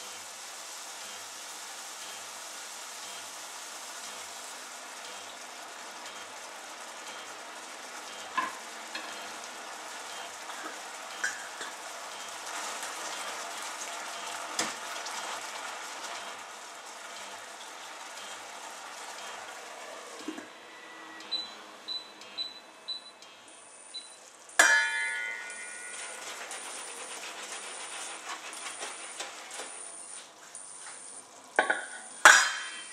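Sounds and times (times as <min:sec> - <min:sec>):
broth simmering and sizzling: 0:00.0 - 0:32.9
short high beeps: 0:21.3 - 0:24.2
steel lid clinking on pan: 0:24.6 - 0:26.0, 0:31.6 - 0:32.9.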